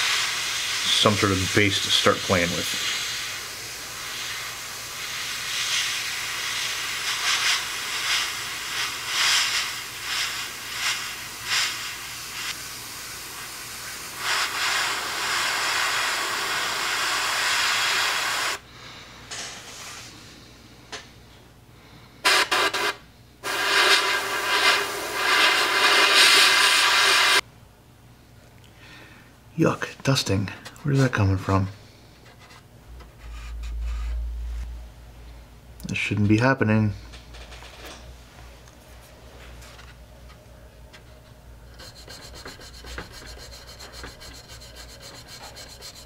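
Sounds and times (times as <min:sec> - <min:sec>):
airbrush hissing: 0:00.0 - 0:18.6, 0:22.3 - 0:27.4, 0:41.7 - 0:46.0.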